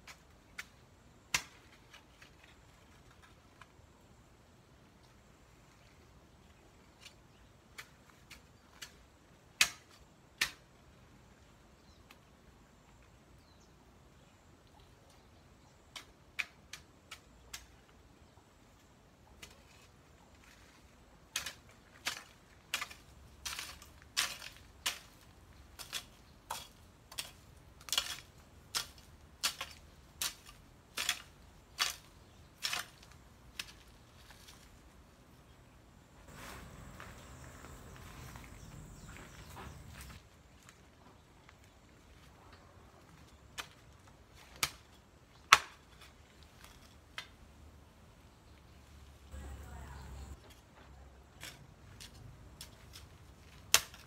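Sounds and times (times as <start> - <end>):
garden tool striking soil: 0.0 - 3.7, 19.3 - 35.0, 36.3 - 40.8, 49.4 - 54.0.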